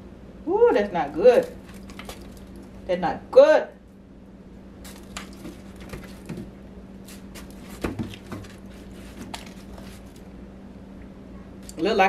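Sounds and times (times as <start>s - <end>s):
steady low hum: 0.0s - 12.0s
foil pan crinkling: 1.2s - 2.8s, 4.8s - 10.3s.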